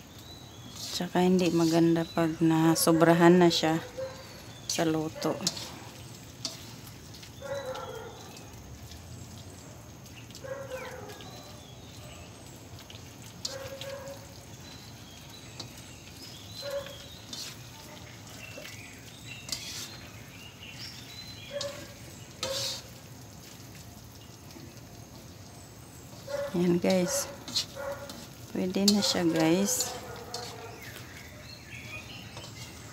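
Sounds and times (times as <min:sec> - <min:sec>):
vegetables sizzling in a wok: 0:00.0 - 0:32.9
spatula scraping pan: 0:00.6 - 0:02.9, 0:03.5 - 0:07.0, 0:15.6 - 0:21.0, 0:21.6 - 0:23.0, 0:26.1 - 0:31.0, 0:32.2 - 0:32.9.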